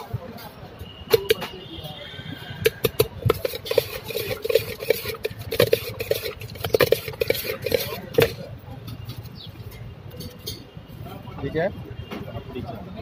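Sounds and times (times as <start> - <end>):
metal spoon scraping steel bowl: 2.2 - 10.7.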